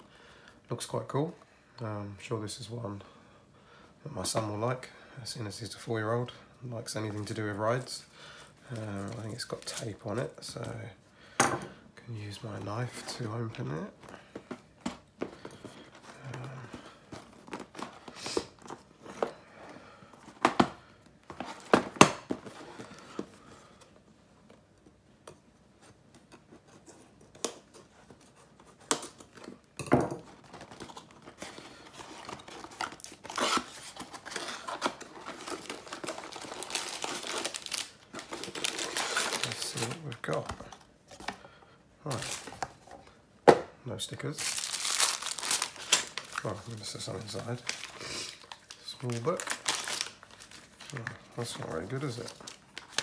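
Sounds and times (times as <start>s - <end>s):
cardboard and plastic bags rustling: 6.8s - 10.9s, 12.2s - 23.8s, 27.8s - 41.4s, 42.0s - 43.1s, 44.2s - 53.0s.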